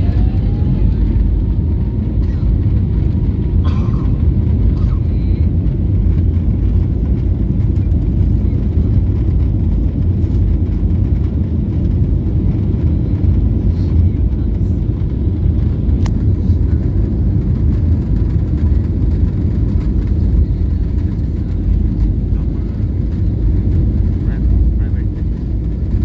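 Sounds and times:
airliner cabin low rumble: 0.0s - 26.0s.

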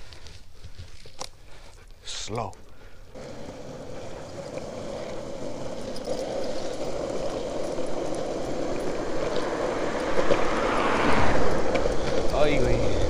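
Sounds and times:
longboard wheels rolling on asphalt: 2.8s - 13.0s.

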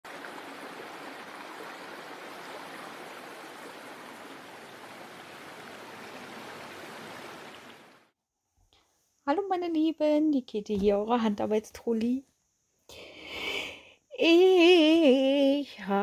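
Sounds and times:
water pouring down waterfall: 0.0s - 8.1s.

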